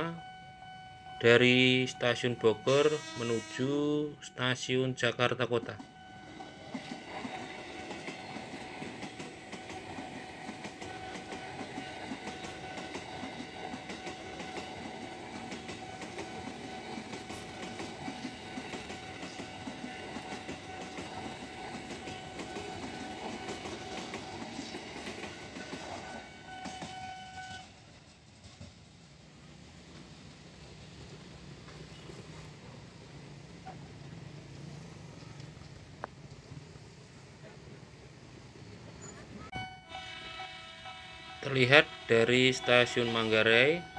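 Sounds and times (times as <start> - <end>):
electric train high tone: 0.0 - 27.9, 38.6 - 43.9
wheels clicking over rail joints: 5.8 - 29.3.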